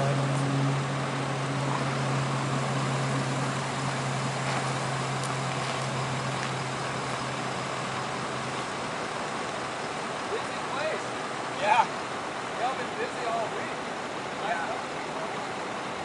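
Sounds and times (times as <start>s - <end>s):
aircraft engine droning: 0.0s - 10.2s.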